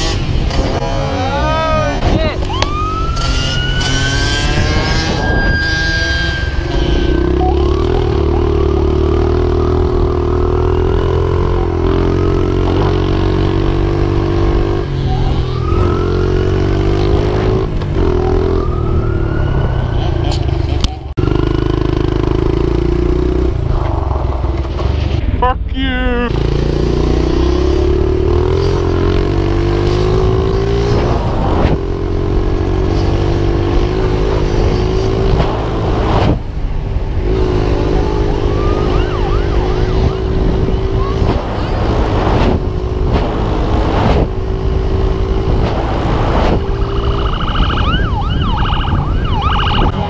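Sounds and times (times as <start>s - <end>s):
dirt bike engine high revs: 0.0s - 2.3s, 3.0s - 15.1s
police siren wailing: 2.4s - 13.0s, 14.6s - 21.6s, 37.6s - 41.9s, 46.6s - 50.0s.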